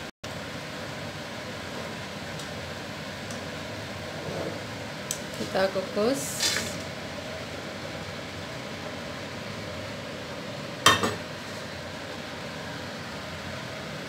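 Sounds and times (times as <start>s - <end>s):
water boiling hiss: 0.3s - 14.0s
steamer basket clanking on pot: 10.9s - 11.3s.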